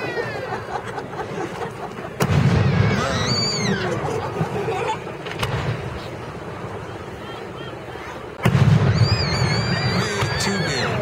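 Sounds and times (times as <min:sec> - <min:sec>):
sharp crack: 0:02.2 - 0:02.8, 0:08.4 - 0:09.4
firework boom: 0:02.2 - 0:03.0, 0:08.4 - 0:09.7.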